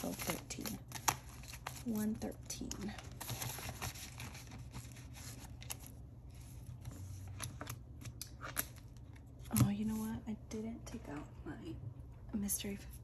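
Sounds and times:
plastic envelopes and paper rustling: 0.0s - 10.2s.

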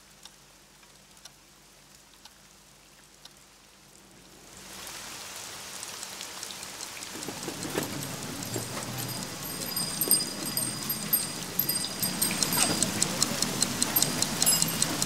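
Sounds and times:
faint ticks: 0.0s - 4.3s, 4.9s - 15.0s
heavy raindrops striking: 0.0s - 15.0s
rain falling: 0.0s - 15.0s.

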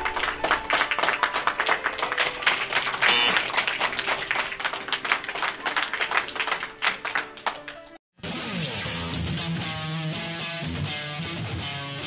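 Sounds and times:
dense clapping: 0.0s - 8.0s
background music held notes: 0.0s - 12.0s.

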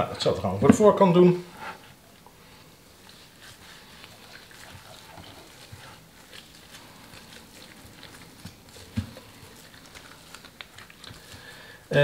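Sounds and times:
glove rustle: 1.9s - 12.0s
soft pats on wet chicken skin: 3.0s - 11.9s.

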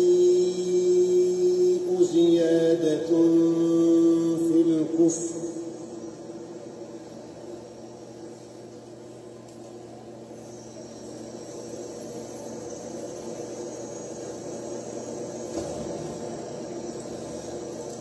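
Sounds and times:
background hiss: 0.0s - 18.0s.

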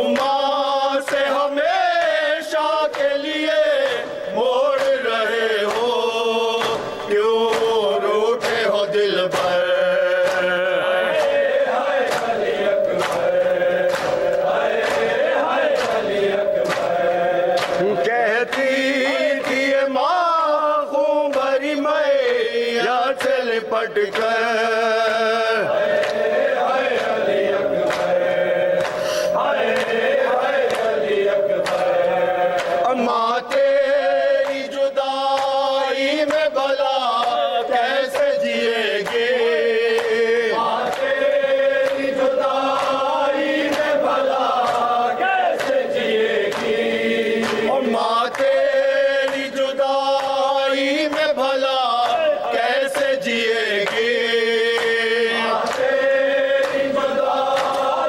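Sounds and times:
men chanting a lament: 0.0s - 58.0s
person reciting into a microphone: 0.0s - 58.0s
hands slapping chests: 6.6s - 7.8s, 11.2s - 17.9s, 28.8s - 31.0s, 31.6s - 32.0s, 32.6s - 33.8s, 45.6s - 46.8s, 47.4s - 49.6s, 56.6s - 58.0s.

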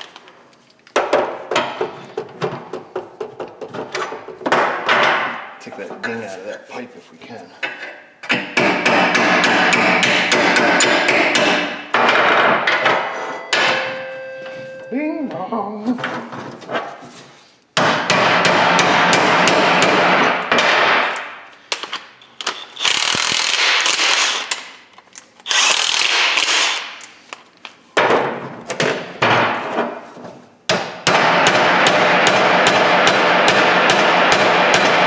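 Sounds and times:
impact wrench rattling: 22.4s - 24.8s.

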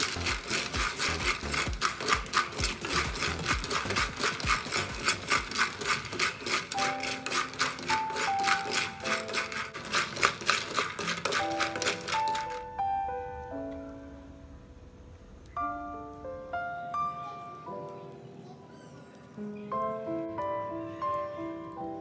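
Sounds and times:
spatula scraping peanuts in pan: 0.0s - 12.7s
soft background music: 0.0s - 22.0s.

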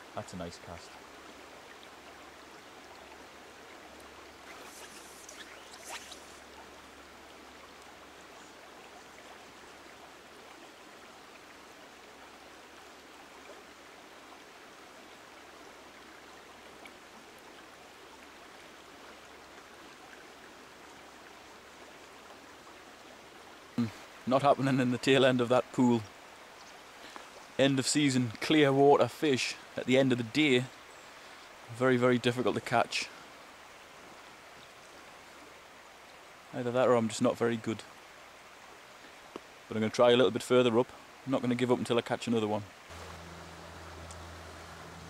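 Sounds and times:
river water running over rocks: 0.0s - 45.0s
brief swishes: 4.4s - 6.4s.

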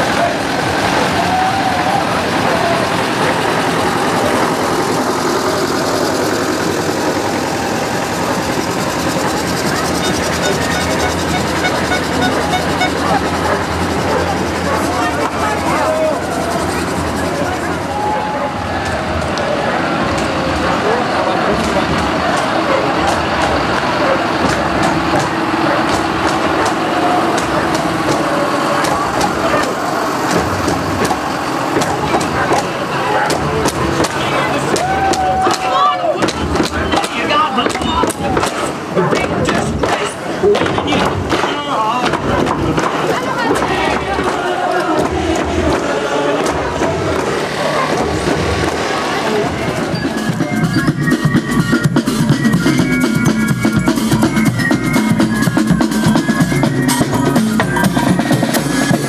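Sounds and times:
crowd chatter: 0.0s - 59.0s
tractor engine running: 0.0s - 59.0s.

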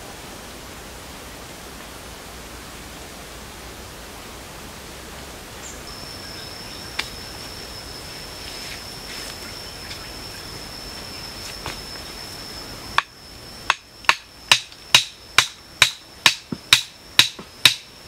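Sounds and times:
steady hiss: 0.0s - 18.0s
insect high-pitched note: 5.5s - 18.0s.

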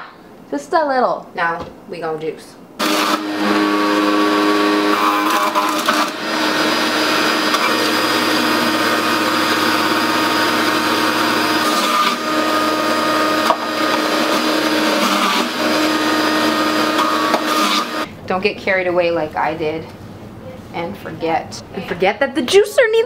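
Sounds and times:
juicer grinding carrots: 2.8s - 18.1s
juicer motor humming: 2.8s - 18.1s.

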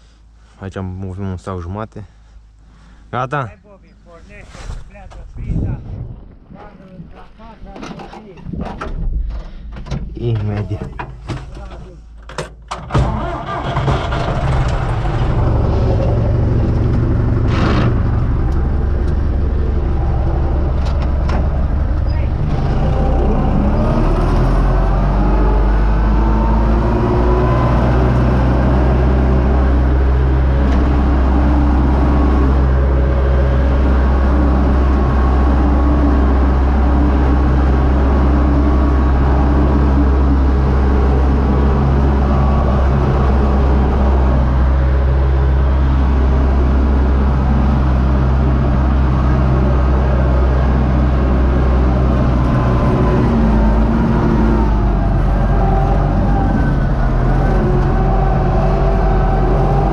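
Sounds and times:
tractor diesel engine running: 12.8s - 59.9s.

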